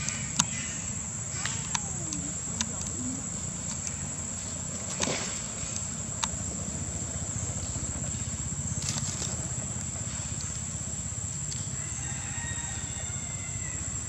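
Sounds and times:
high-pitched insect drone: 6.4 - 14.0.

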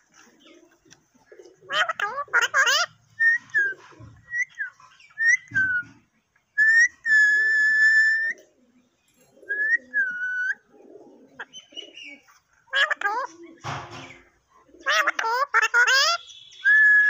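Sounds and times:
parakeet whistling: 4.3 - 5.9.

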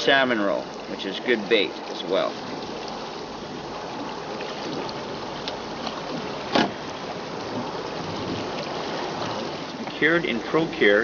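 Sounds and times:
river current rushing: 0.0 - 11.0
small tick: 5.4 - 6.0.

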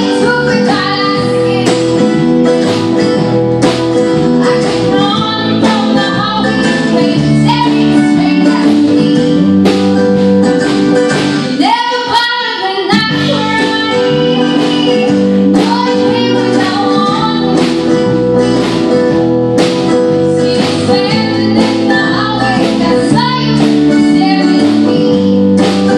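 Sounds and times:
woman singing: 0.0 - 2.2, 4.3 - 9.8, 11.4 - 18.2, 20.2 - 25.9
bass guitar: 0.0 - 25.9
drum kit: 0.0 - 25.9
mandolin: 0.0 - 25.9
strummed acoustic guitar: 0.0 - 25.9.

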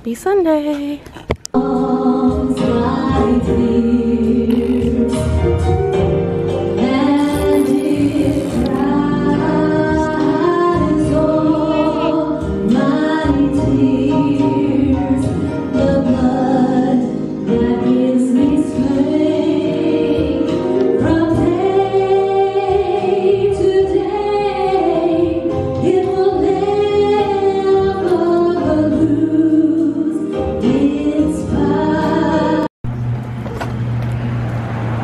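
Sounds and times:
choir singing a hymn: 1.6 - 5.4, 6.4 - 32.7.

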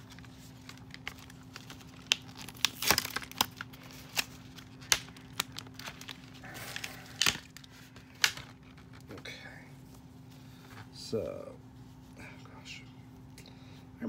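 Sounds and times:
packaging crinkling: 0.0 - 9.3
faint steady hum: 0.0 - 14.0.

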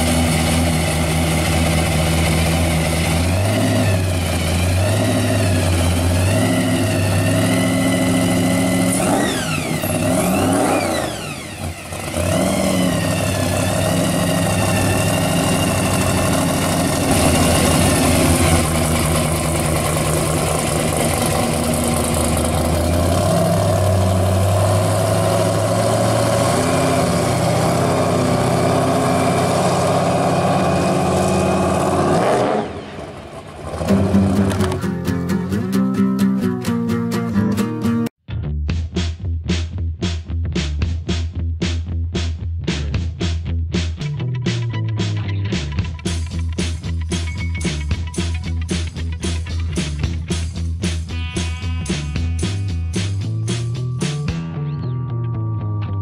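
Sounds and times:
car engine revving: 0.0 - 36.1.

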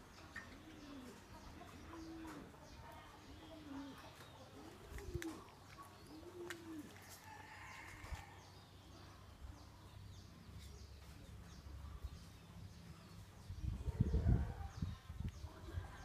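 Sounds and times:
dove cooing: 0.4 - 2.6, 3.4 - 7.9.

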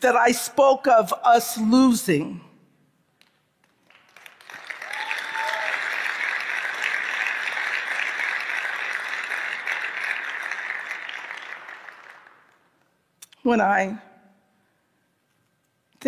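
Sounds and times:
large audience applauding: 3.6 - 12.7.

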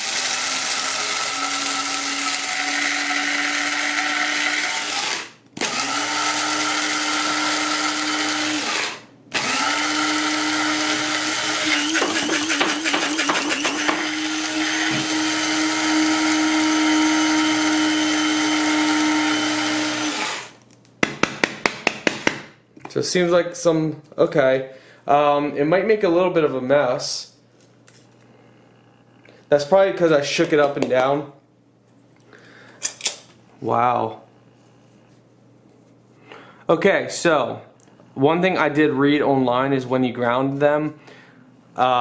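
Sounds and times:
coffee grinder chopping beans: 0.0 - 20.6.

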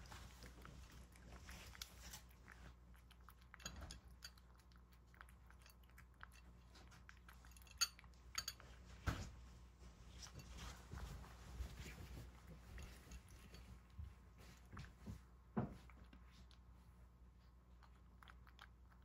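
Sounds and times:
cat chewing and crunching food: 0.0 - 19.0
metal spoon clinking in bowl: 7.4 - 8.6.

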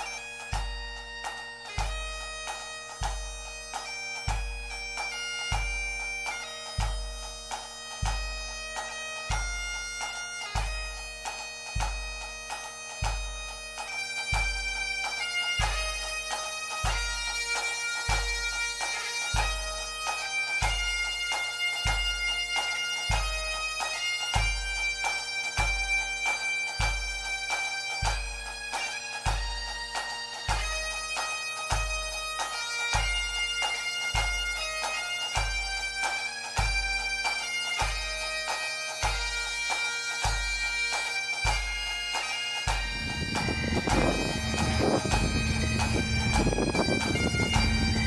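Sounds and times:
bagpipe tune with drones: 0.0 - 48.0
deep drum beat: 42.7 - 48.0.

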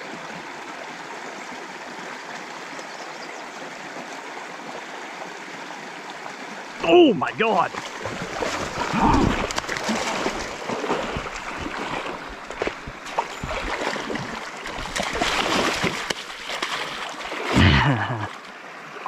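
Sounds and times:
stream water over rocks: 0.0 - 19.0
fish splashing: 7.7 - 17.6.

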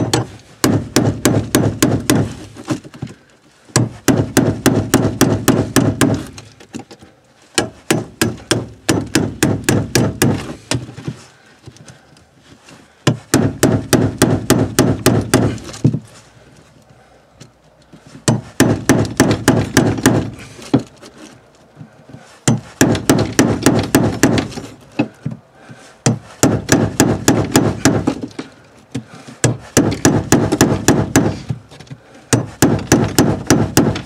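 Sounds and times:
hammer striking chisel into wood: 0.0 - 2.4, 3.7 - 6.3, 7.6 - 10.8, 13.0 - 15.6, 18.2 - 20.9, 22.4 - 24.7, 26.0 - 28.3, 29.4 - 31.5, 32.3 - 34.0.

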